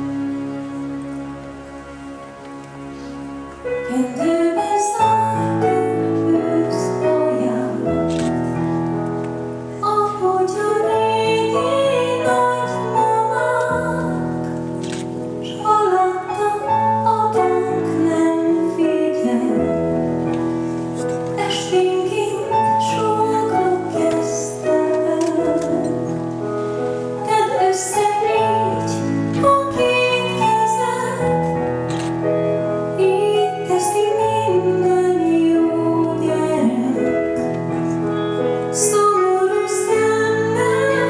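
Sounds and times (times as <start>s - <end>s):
woman singing a ballad: 3.8s - 8.1s, 9.8s - 14.4s, 15.4s - 20.0s, 21.3s - 26.2s, 27.2s - 31.6s, 32.9s - 37.6s, 38.7s - 41.0s.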